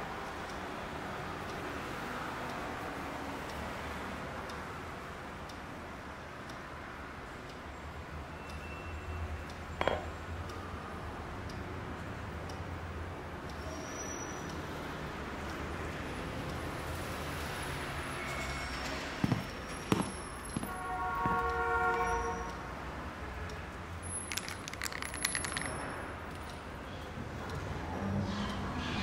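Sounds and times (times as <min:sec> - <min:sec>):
small clinks clattering: 0:09.8 - 0:10.1, 0:24.1 - 0:26.5
horn-like tone: 0:20.7 - 0:22.6.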